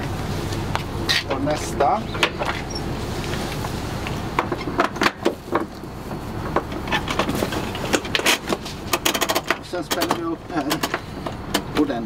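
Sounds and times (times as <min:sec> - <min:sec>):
steady low hum: 0:00.0 - 0:12.0
metallic clicks and knocks: 0:07.9 - 0:11.7.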